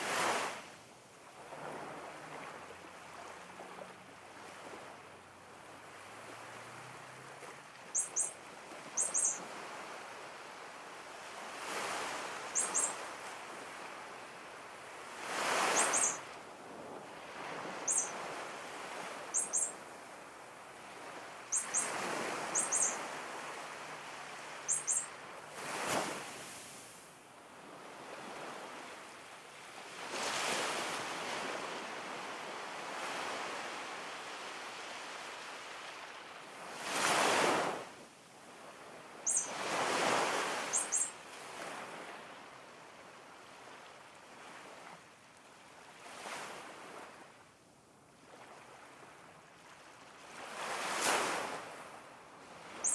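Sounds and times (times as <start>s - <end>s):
ocean waves washing in: 5.8s - 27.0s
high bird chirps: 7.9s - 8.4s, 9.0s - 9.4s, 12.5s - 13.0s, 15.7s - 16.2s, 17.9s - 18.2s, 19.3s - 19.8s, 21.5s - 23.0s, 24.6s - 25.2s, 39.2s - 39.6s, 40.7s - 41.1s.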